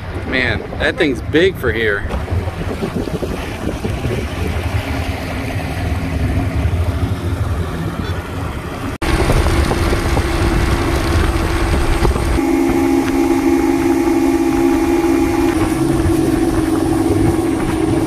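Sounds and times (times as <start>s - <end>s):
outboard motor running: 0.0s - 18.0s
wind and water rushing: 0.0s - 18.0s.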